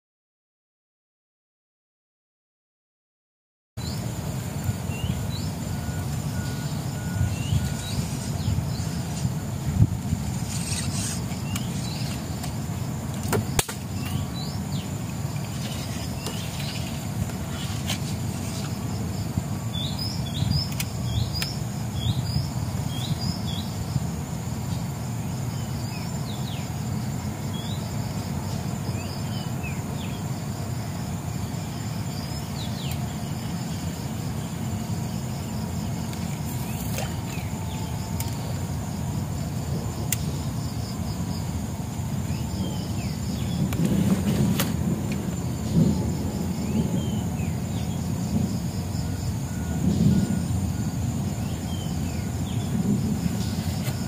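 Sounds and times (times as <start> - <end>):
high insect drone: 3.8 - 54.0
bird chirps: 4.8 - 9.2.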